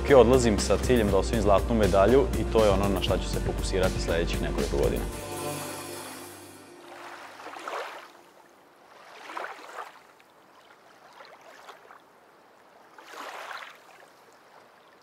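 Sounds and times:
kayak paddle splashing: 6.8s - 15.0s.

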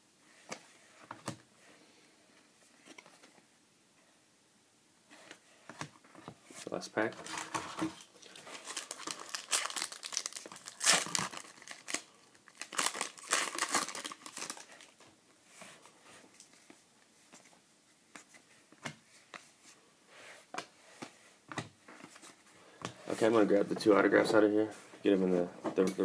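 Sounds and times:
foil wrapper crinkling and tearing: 7.2s - 15.0s.

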